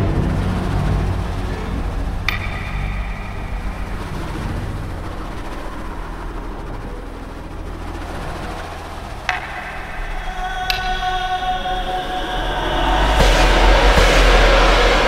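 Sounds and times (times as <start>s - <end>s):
low rumbling drone: 0.0s - 15.0s
ringing metallic hit: 2.2s - 5.5s, 9.3s - 15.0s.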